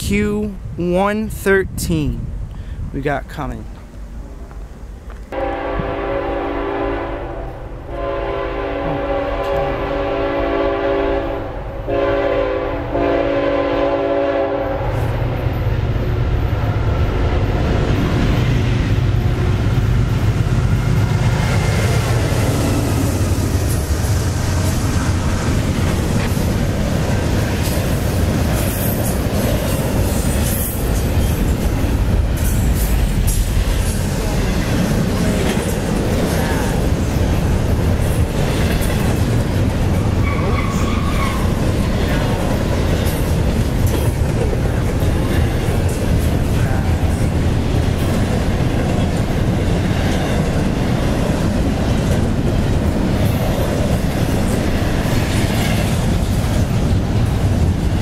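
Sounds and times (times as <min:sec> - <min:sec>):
train passing with rumble: 0:03.7 - 0:58.0
train horn blasts: 0:05.3 - 0:15.0.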